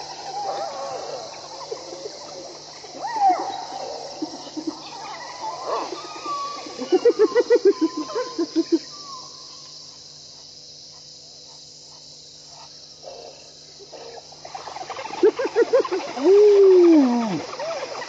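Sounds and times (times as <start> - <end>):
hyenas and wild dogs calling: 0.0 - 9.6, 13.0 - 18.0
crickets chirring: 0.0 - 18.0
high twittering calls: 13.2 - 18.0.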